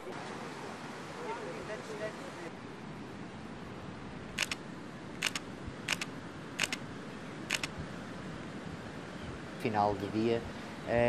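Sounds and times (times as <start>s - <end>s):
camera shutter double clicks: 4.4s - 4.6s, 5.2s - 6.8s, 7.5s - 7.7s.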